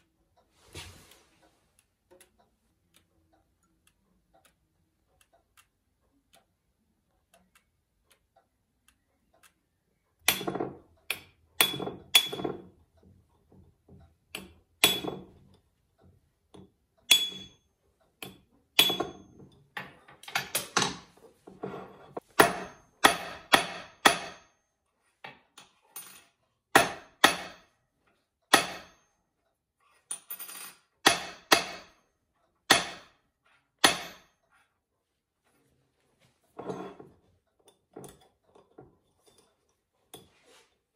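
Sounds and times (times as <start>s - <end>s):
faint regular ticking: 1.4s - 10.2s
hammer striking metal: 10.2s - 12.6s, 14.3s - 15.3s, 17.1s - 17.6s, 18.2s - 19.3s, 22.2s - 24.5s, 26.7s - 27.7s, 28.5s - 29.1s, 31.0s - 32.0s, 32.7s - 33.2s, 33.8s - 34.3s.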